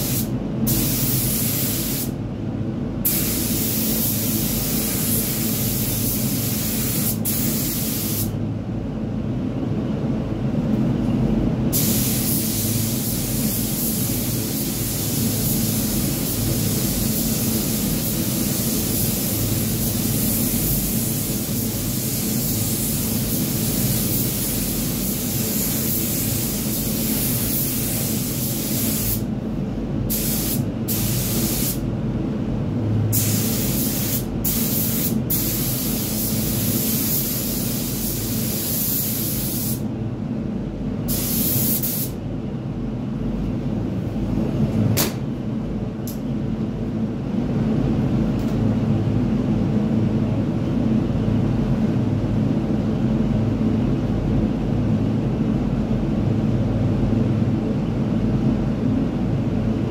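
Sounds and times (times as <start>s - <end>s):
paint spray gun hissing: 0.0s - 2.1s, 3.1s - 8.3s, 11.8s - 29.2s, 30.1s - 31.8s, 33.2s - 39.8s.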